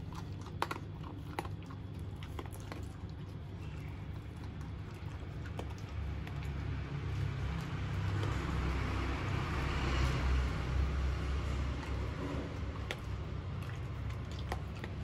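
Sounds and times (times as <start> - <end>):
dogs crunching dry kibble: 0.0 - 15.0
passing vehicle rumble: 4.1 - 15.0.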